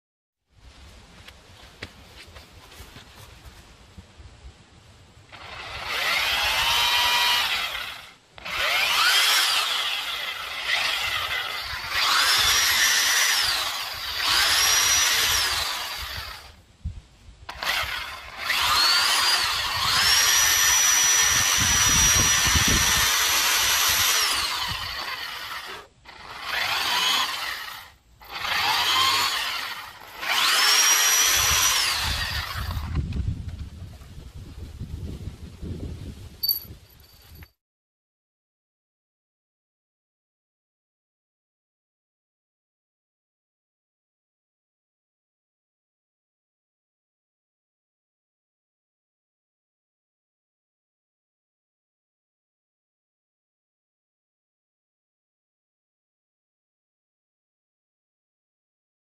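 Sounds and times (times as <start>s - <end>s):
electric drill boring wood: 5.3s - 16.6s, 17.5s - 33.0s.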